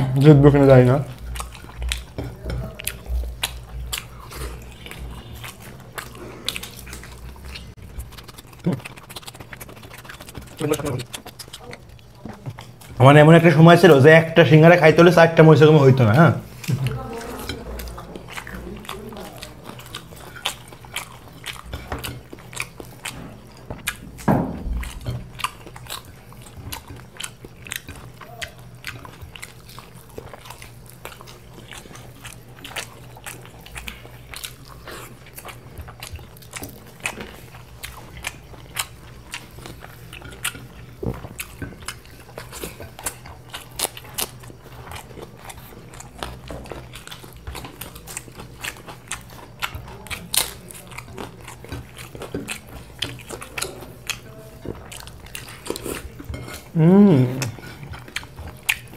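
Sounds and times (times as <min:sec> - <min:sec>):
close chewing and biting: 0:00.0 - 0:58.9
thump: 0:24.3 - 0:24.9.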